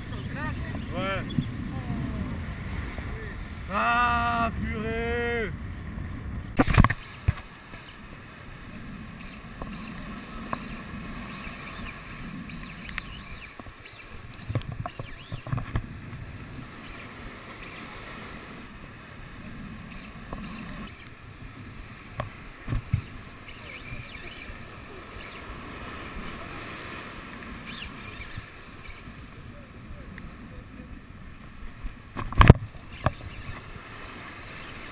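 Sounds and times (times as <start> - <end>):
sharp knocks and clicks: 12.5 - 15.8, 31.8 - 33.6
sea waves splashing over rocks: 24.5 - 27.7, 31.6 - 34.9.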